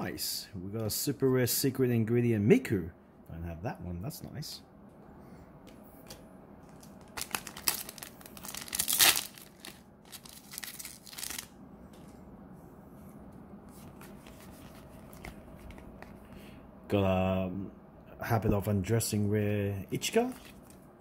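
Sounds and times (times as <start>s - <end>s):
cards being handled: 5.7s - 12.1s, 13.7s - 16.3s, 20.2s - 20.8s
plastic wrapper tearing and crinkling: 6.7s - 11.6s.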